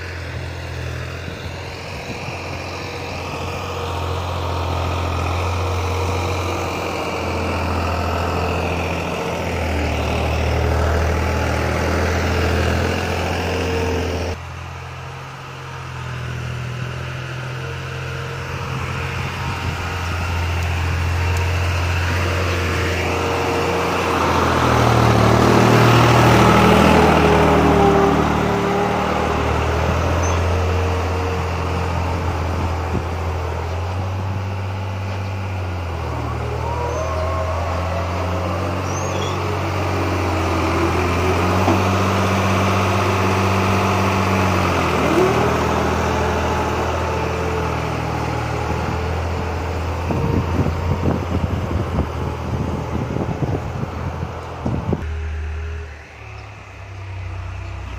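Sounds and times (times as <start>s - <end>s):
tractor diesel engine running: 0.0s - 57.9s.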